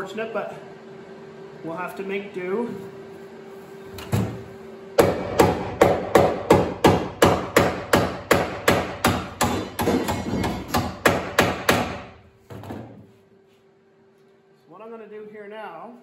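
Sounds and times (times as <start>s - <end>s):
hammer tapping on sheet metal: 5.0s - 12.2s.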